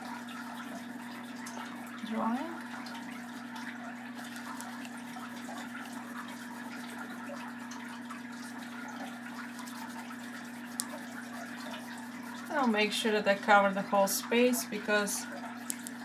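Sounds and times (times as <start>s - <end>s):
oil pastel scratching on paper: 9.6s - 13.7s.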